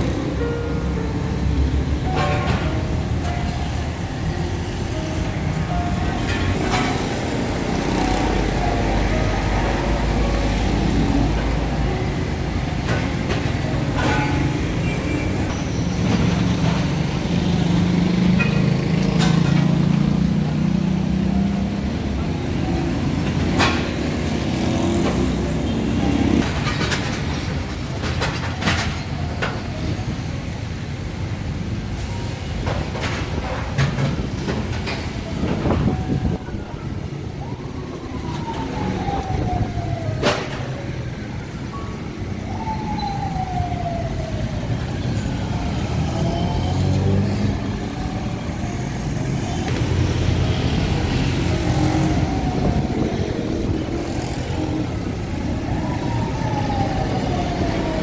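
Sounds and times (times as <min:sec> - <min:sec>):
vehicle engines passing: 0:00.0 - 0:58.0
knocks and clatter: 0:26.4 - 0:29.7.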